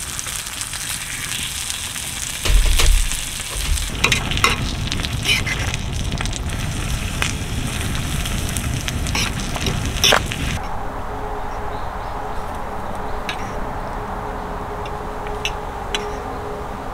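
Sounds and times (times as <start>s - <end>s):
food sizzling in a pan: 0.0s - 10.6s.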